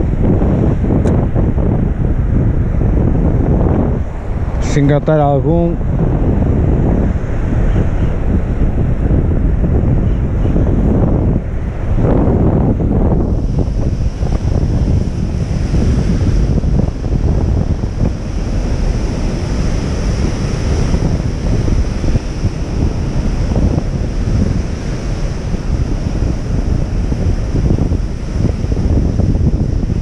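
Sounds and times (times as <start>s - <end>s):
wind buffeting microphone: 0.0s - 30.0s
surf breaking over rocks: 11.6s - 30.0s.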